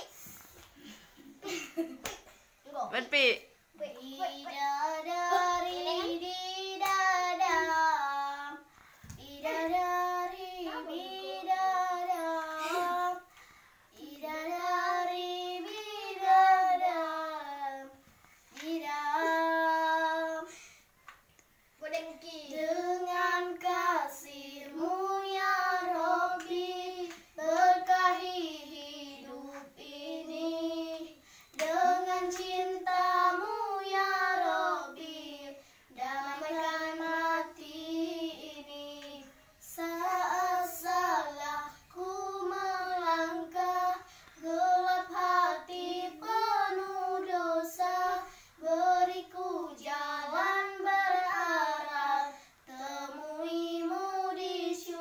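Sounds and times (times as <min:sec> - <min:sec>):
children singing unaccompanied: 0:03.7 - 0:20.6, 0:21.8 - 0:55.0.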